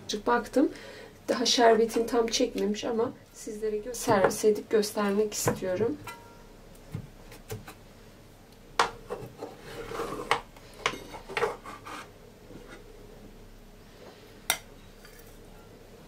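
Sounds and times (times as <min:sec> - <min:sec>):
metal server scraping baking tray: 0:09.1 - 0:10.4, 0:11.2 - 0:12.8.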